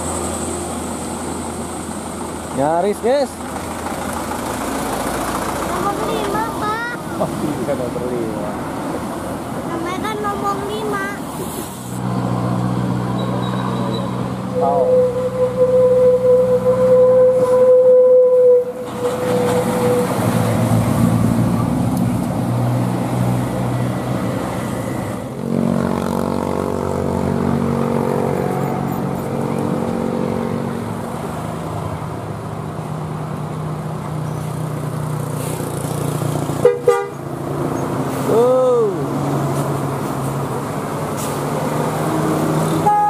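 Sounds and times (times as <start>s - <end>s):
diesel coach engines passing: 0.0s - 43.0s
bus horn steady note: 14.6s - 20.1s, 36.6s - 37.2s.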